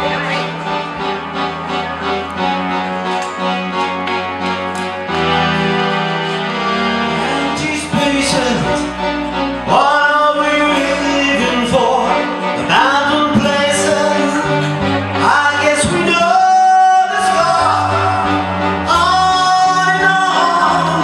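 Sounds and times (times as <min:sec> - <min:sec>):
band playing sustained chords: 0:00.0 - 0:21.0
man singing into a microphone: 0:07.1 - 0:21.0.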